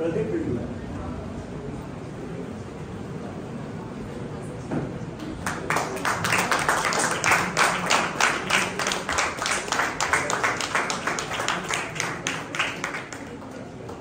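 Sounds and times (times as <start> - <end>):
audience applauding: 5.3 - 14.0.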